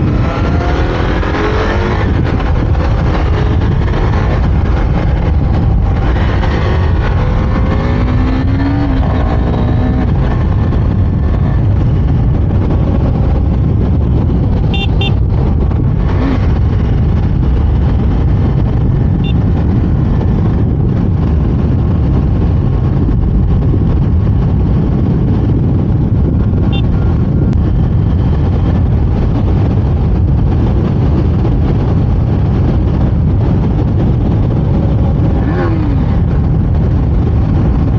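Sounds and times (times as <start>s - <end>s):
motorcycle engine accelerating: 0.0s - 37.9s
wind rushing over microphone: 0.0s - 37.9s
short high horn toots: 14.7s - 15.2s.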